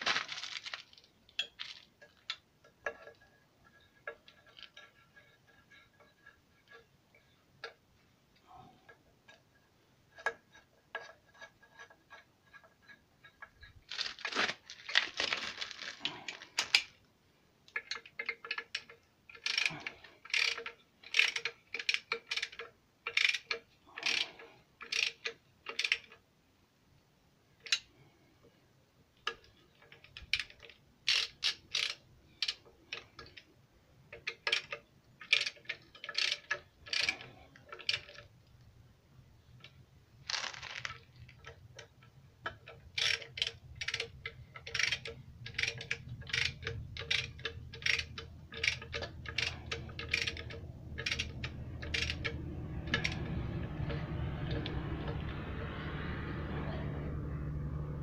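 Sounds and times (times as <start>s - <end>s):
ratchet wrench clicking: 17.8s - 26.2s, 29.3s - 33.4s, 34.1s - 38.2s, 42.9s - 55.6s.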